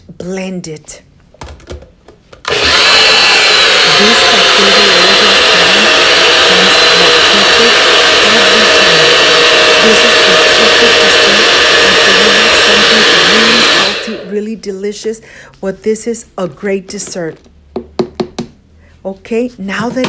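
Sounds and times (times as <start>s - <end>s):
blender motor running: 2.4s - 14.4s.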